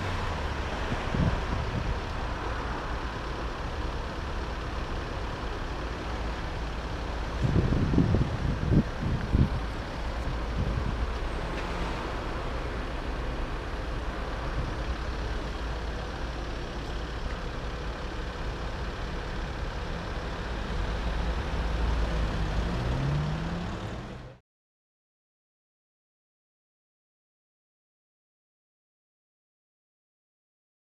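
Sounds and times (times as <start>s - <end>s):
traffic engine rumble: 0.0s - 24.4s
engine revving: 20.8s - 24.4s.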